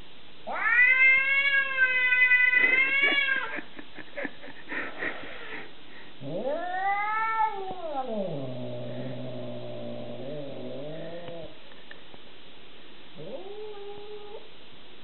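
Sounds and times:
cat caterwauling: 0:00.5 - 0:03.7, 0:06.2 - 0:11.5, 0:13.2 - 0:14.5.

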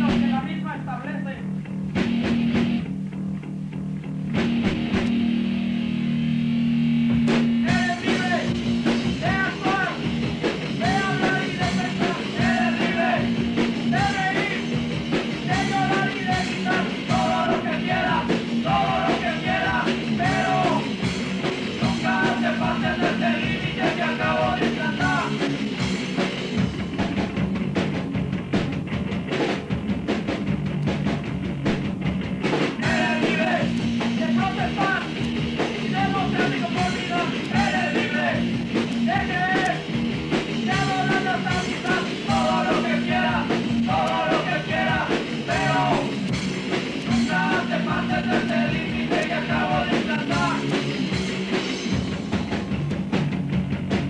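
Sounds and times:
punk rock band playing: 0:00.0 - 0:54.0
shouted singing: 0:10.8 - 0:14.7, 0:15.4 - 0:21.0, 0:21.8 - 0:25.4, 0:32.8 - 0:35.1, 0:35.8 - 0:39.8, 0:40.6 - 0:46.3, 0:47.0 - 0:50.8.

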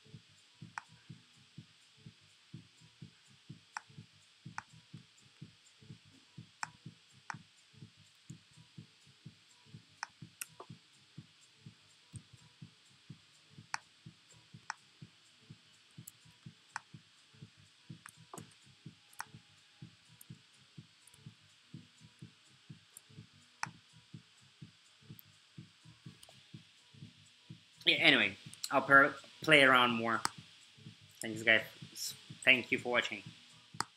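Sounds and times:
sharp mouse clicks: 0:10.0 - 0:10.7.

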